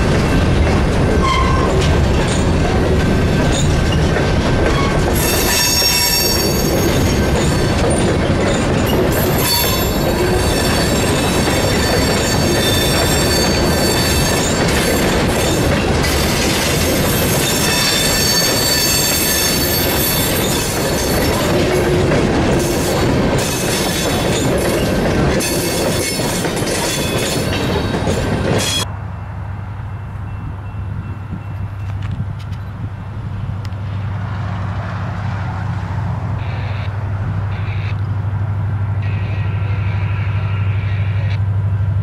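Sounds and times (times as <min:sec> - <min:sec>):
train clattering over track: 0:00.0 - 0:28.9
train wheels squealing on rails: 0:01.2 - 0:02.7, 0:03.3 - 0:29.4, 0:39.0 - 0:41.4.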